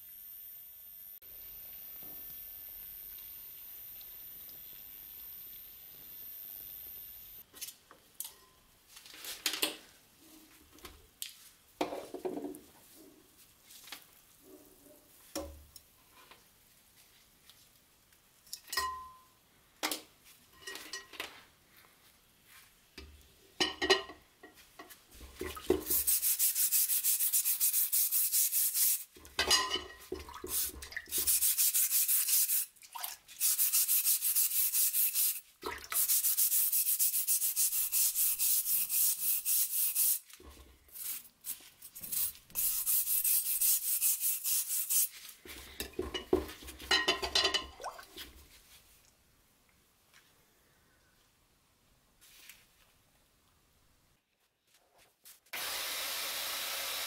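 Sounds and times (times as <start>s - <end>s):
brush scrubbing metal blade: 25.8s - 29.1s, 30.5s - 45.4s
water dripping: 29.2s - 31.3s, 32.8s - 33.4s, 35.6s - 36.0s, 47.0s - 48.4s.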